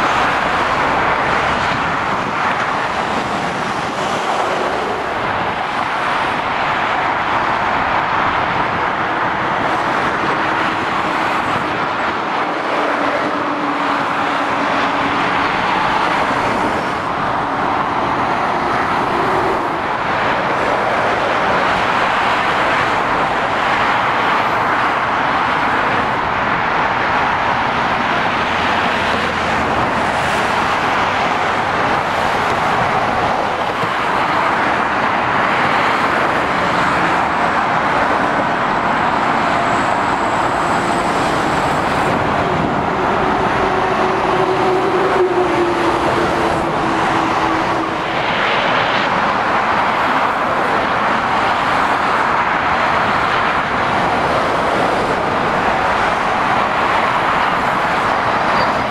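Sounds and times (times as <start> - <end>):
road traffic driving past: 0.0 - 58.9.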